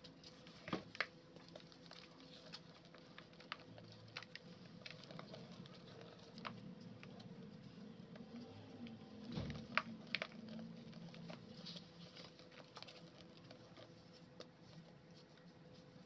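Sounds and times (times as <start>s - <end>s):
crumbs pattering: 0.0s - 16.0s
dry clay crumbling: 0.0s - 16.0s.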